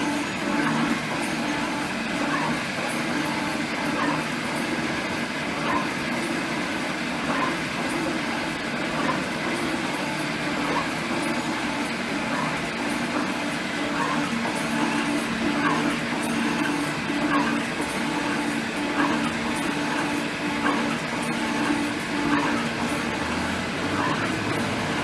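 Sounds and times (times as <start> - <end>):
motor hum: 0.0 - 25.0
metal shaper cutting aluminum: 7.3 - 25.0.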